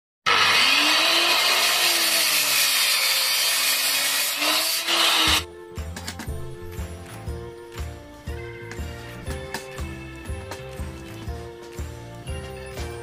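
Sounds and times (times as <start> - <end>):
circular saw cutting wood: 0.2 - 5.5
music with steady beat: 5.4 - 13.0.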